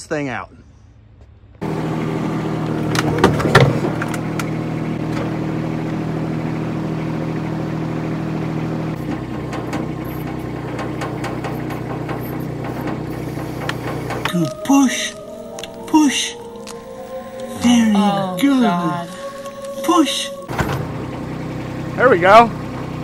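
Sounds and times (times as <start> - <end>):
small engine running: 1.6 - 14.3, 20.5 - 23.0.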